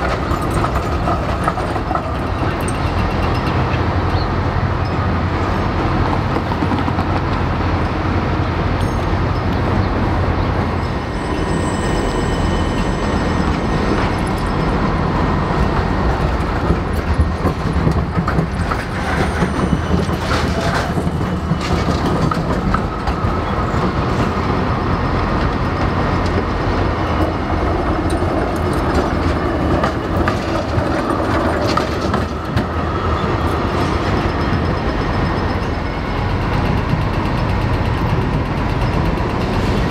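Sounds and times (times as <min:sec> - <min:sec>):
steady tram rumble: 0:00.0 - 0:39.9
tram wheels clacking over rail joints: 0:00.0 - 0:39.9.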